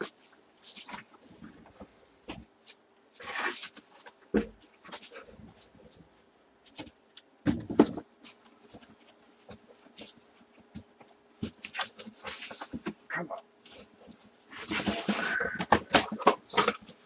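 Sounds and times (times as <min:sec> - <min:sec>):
box knock and clatter: 0:07.5 - 0:08.1
cardboard boxes handled: 0:13.7 - 0:17.0.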